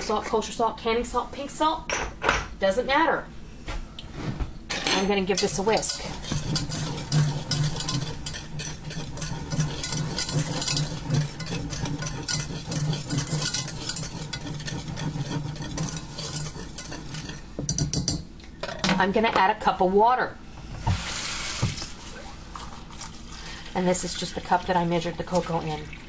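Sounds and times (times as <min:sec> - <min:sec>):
whisk scraping a metal saucepan: 0:05.1 - 0:18.2.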